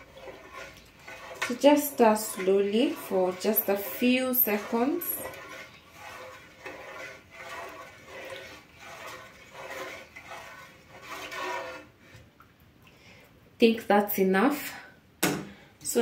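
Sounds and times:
spatula stirring milk in metal bowl: 0:00.0 - 0:12.4.

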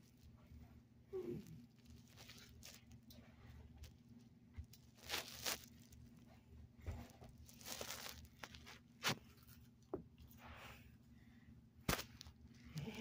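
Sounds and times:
faint low hum: 0:00.0 - 0:13.0
socked feet shuffling on carpet: 0:06.8 - 0:09.6.

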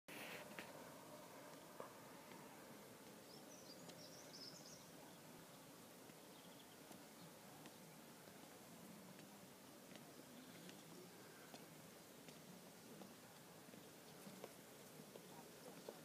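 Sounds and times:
high bird chirps: 0:03.3 - 0:05.0.

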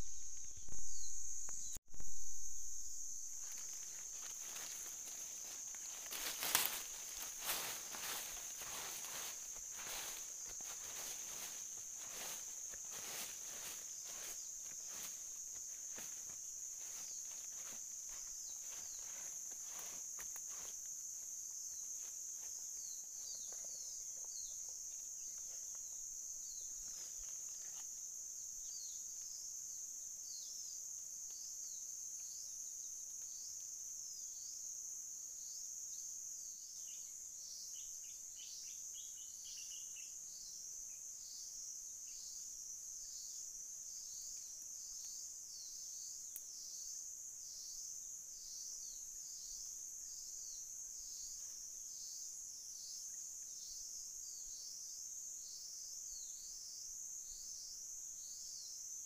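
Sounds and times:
high-pitched insect chorus: 0:00.0 - 0:59.0
footsteps crunching on dry leaves: 0:03.3 - 0:20.9.

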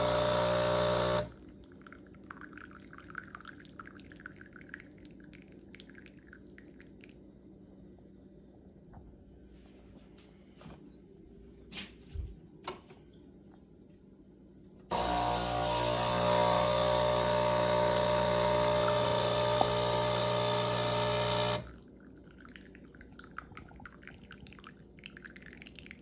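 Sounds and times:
espresso machine pump humming: 0:00.0 - 0:01.4, 0:14.9 - 0:22.0
hot water streaming into a glass: 0:00.0 - 0:07.3, 0:14.9 - 0:26.0.

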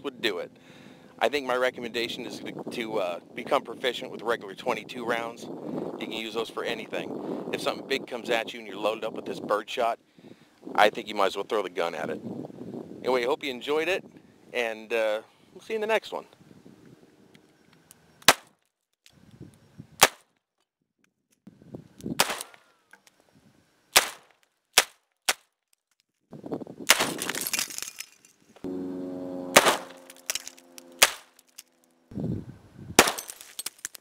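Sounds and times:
single gunshots: 0:18.3 - 0:18.5, 0:22.2 - 0:22.6, 0:24.0 - 0:25.4, 0:29.5 - 0:30.3, 0:30.9 - 0:31.4, 0:33.0 - 0:33.4
target bursting apart: 0:29.5 - 0:31.4.

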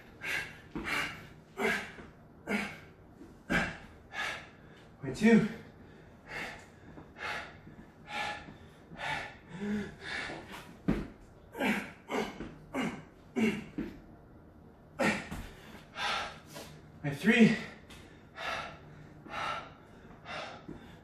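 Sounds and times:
man gasping breaths: 0:00.0 - 0:14.0, 0:15.0 - 0:16.9, 0:17.5 - 0:21.0
man grunting: 0:00.8 - 0:02.9, 0:03.5 - 0:03.9, 0:11.5 - 0:13.9, 0:15.0 - 0:15.5.

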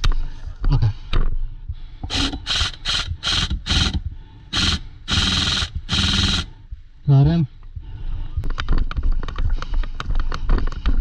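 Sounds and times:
airsoft gun firing bursts: 0:02.1 - 0:06.5.

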